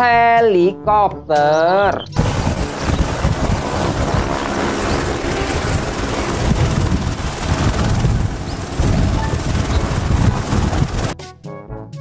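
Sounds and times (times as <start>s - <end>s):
helicopter rotor beat: 1.9s - 11.2s
turbine whine: 2.0s - 11.2s.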